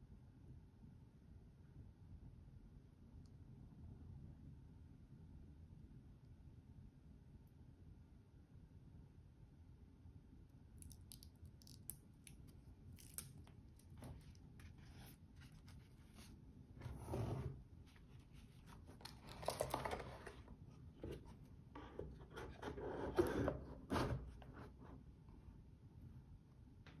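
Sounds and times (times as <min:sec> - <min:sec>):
cardboard box rustling and scraping: 0:14.1 - 0:24.8.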